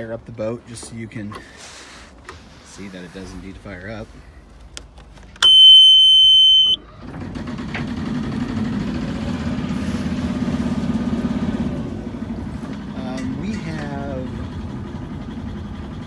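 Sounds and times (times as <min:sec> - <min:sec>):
warning buzzer beep: 0:05.4 - 0:06.8
diesel engine starting and idling: 0:06.8 - 0:16.0.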